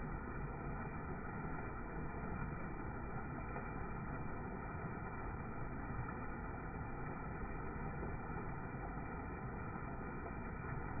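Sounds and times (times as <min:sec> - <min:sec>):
water rushing over waterfall: 0:00.0 - 0:11.0.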